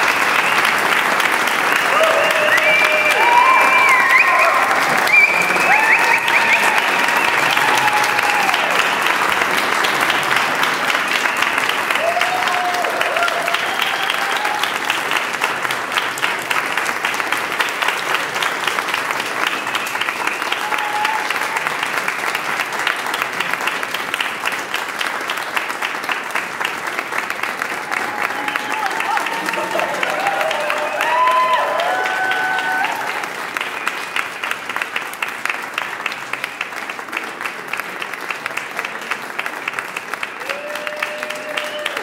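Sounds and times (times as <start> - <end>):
audience applauding: 0.0 - 42.0.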